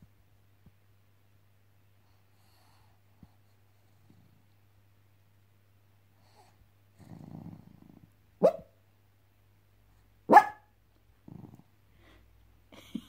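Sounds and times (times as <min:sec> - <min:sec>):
dog growling: 0:07.0 - 0:08.2, 0:11.2 - 0:11.7
small dog barking: 0:08.4 - 0:08.8, 0:10.3 - 0:10.7.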